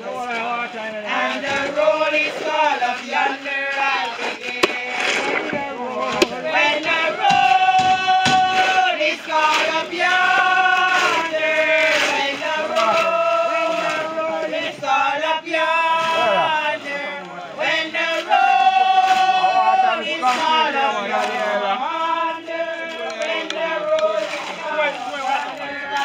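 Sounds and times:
group singing a hymn: 0:00.0 - 0:26.0
sharp knocks: 0:07.2 - 0:08.8.

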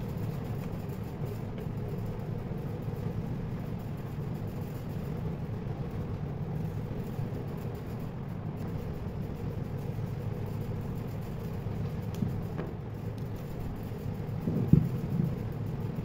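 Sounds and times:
steady low rumble: 0:00.0 - 0:16.0.

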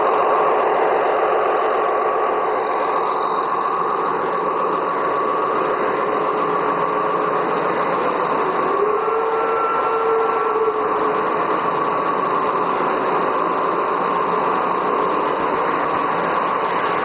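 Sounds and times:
model locomotive whine: 0:00.0 - 0:17.0
model train wheels rattling: 0:03.8 - 0:08.8.

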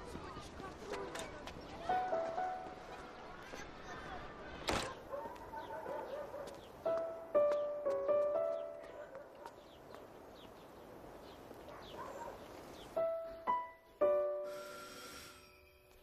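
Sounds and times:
faint birds chirping: 0:00.2 - 0:14.4.

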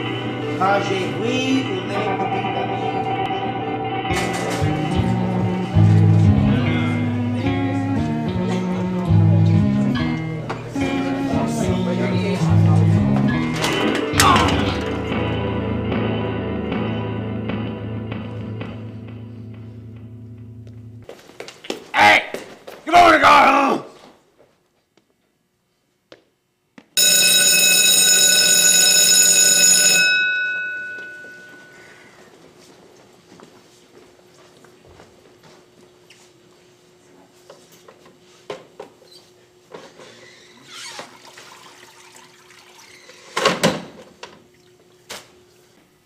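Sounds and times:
electric school bell ringing: 0:00.0 - 0:07.4, 0:27.0 - 0:32.2
water splashing in mop bucket: 0:41.0 - 0:43.4.

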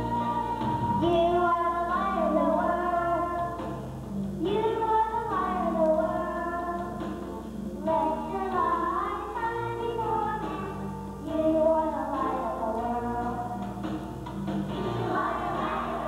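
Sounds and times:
instrumental accompaniment: 0:00.0 - 0:16.0
children singing: 0:14.8 - 0:16.0.

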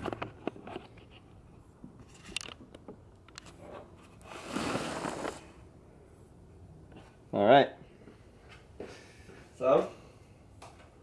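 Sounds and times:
rustling scrape: 0:03.5 - 0:05.6.

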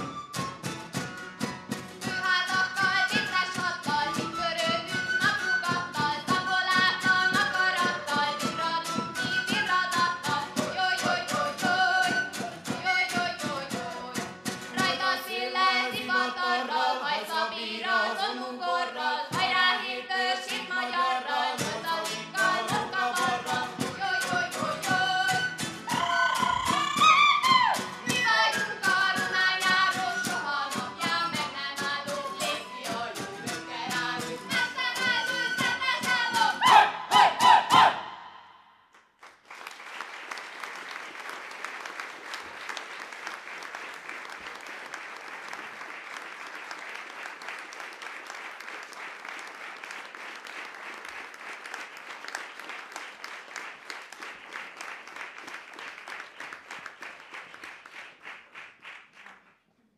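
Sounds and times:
group folk singing: 0:02.0 - 0:38.3
lute playing: 0:22.2 - 0:37.9
audience applauding: 0:25.3 - 0:28.1, 0:39.2 - 0:59.7.

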